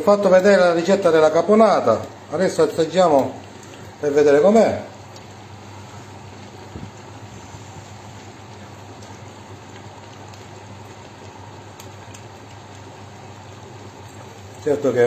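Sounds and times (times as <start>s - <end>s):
faint clicks: 3.2s - 3.9s.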